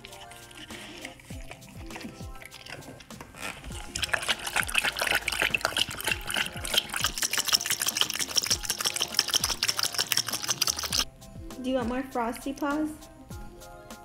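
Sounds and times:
dog lapping water: 0.0 - 3.1, 3.7 - 11.1.

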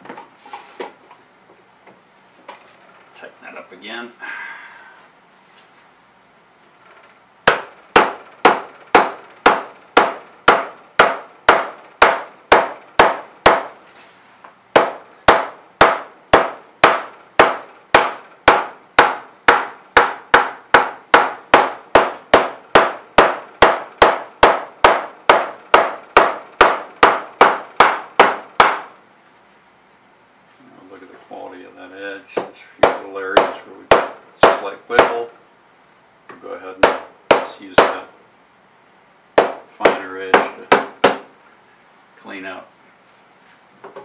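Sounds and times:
mallet knocking on aluminium: 7.5 - 13.8, 14.8 - 28.9, 32.8 - 35.2, 39.4 - 41.3.

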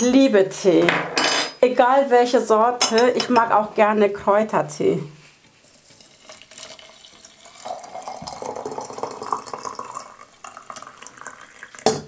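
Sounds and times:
water pouring into a teapot: 5.9 - 12.0.

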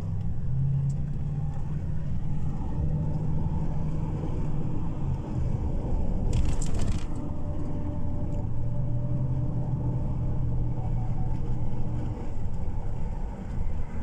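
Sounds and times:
car engine and road rumble: 0.0 - 14.0
brief rustling clatter: 6.3 - 7.2.

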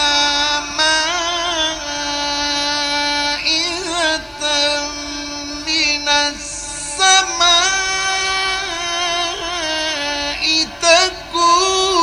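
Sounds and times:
man reciting melodically: 0.0 - 12.0.

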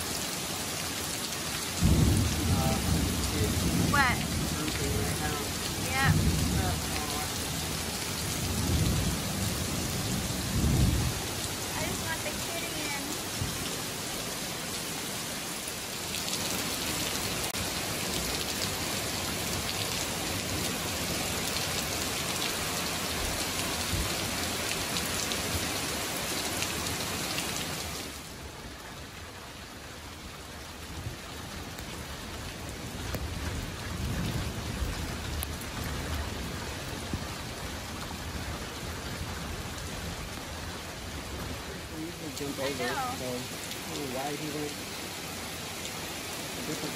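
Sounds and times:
heavy rain pouring: 0.0 - 46.9
low rumble of thunder: 1.8 - 12.1, 32.0 - 41.9.

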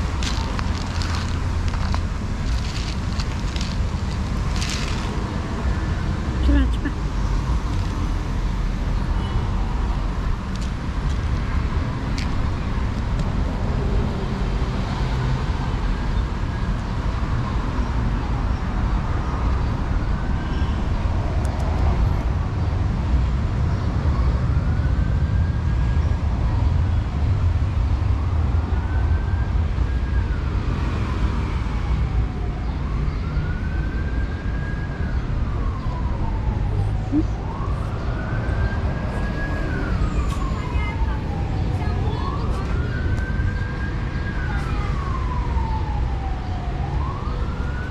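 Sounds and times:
traffic rumble: 0.0 - 47.9
emergency siren wailing: 23.6 - 27.2, 27.8 - 47.9.

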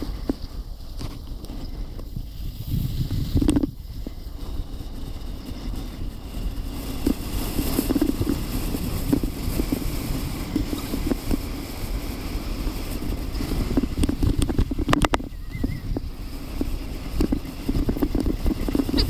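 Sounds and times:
sled runners scraping on snow: 0.0 - 19.0
wind on microphone: 0.0 - 19.0
sled knocking over bumps: 6.0 - 19.0.

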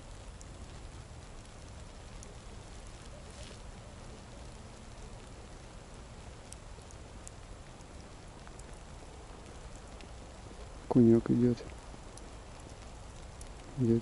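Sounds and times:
faint ticks: 0.0 - 14.0
snow falling on ice: 0.0 - 14.0.

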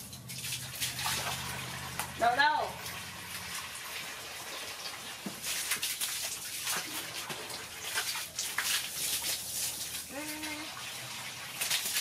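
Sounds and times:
hose water pouring into bucket: 0.0 - 12.0
small water splashes: 0.0 - 12.0.

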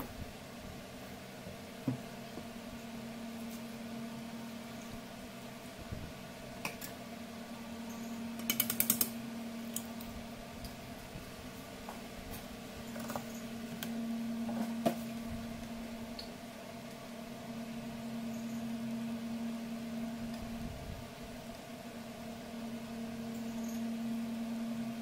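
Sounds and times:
kitchen appliance humming: 0.0 - 25.0
rattle of sharp clicks: 8.4 - 9.2.

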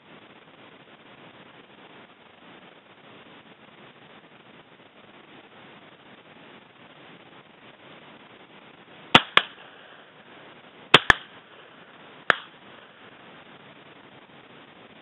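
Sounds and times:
shotgun shots: 9.2 - 9.8, 10.9 - 11.4, 12.3 - 12.6.

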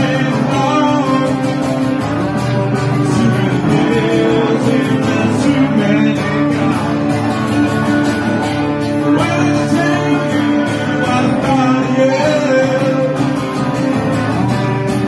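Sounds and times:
acoustic guitar strumming: 0.0 - 15.0
electric guitar lead lines: 0.0 - 15.0.

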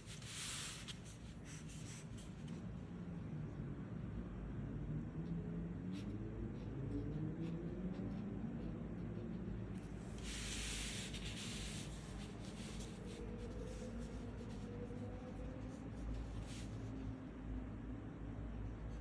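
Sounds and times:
paper sliding across desk: 0.1 - 1.2, 10.1 - 13.8
pen tip scratching paper: 5.9 - 14.6.

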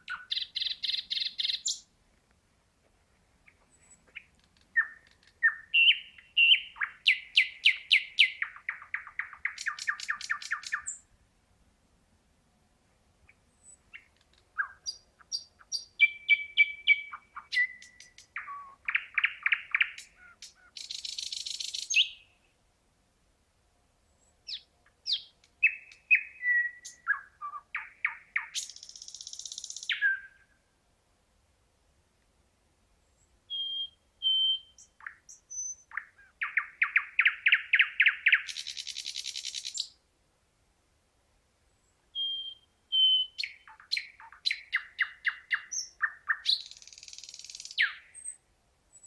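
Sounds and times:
nightingale singing: 0.0 - 1.9, 3.4 - 11.1, 13.2 - 22.6, 24.1 - 30.6, 33.0 - 40.0, 41.7 - 49.0.

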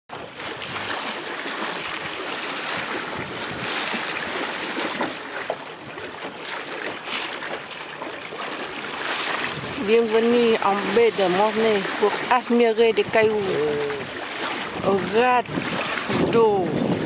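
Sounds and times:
water splashing against boat hull: 0.1 - 17.0
wind on microphone: 0.2 - 17.0.

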